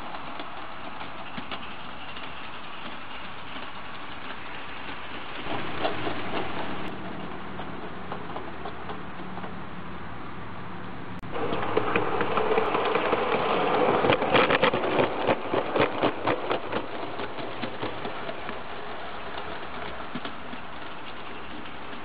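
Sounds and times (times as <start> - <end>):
steam hiss: 0.0 - 6.9
wheels clicking on track: 0.0 - 22.0.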